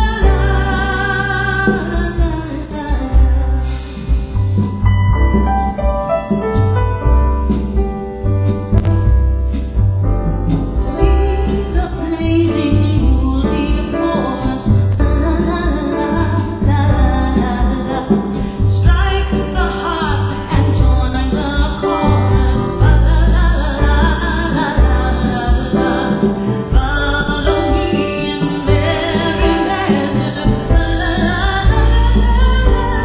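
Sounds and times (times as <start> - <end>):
music with deep bass: 2.1 - 28.0.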